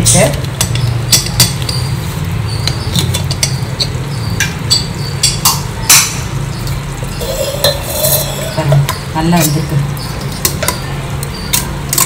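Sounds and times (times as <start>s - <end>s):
metal lid clicks and clanks: 7.2s - 9.0s.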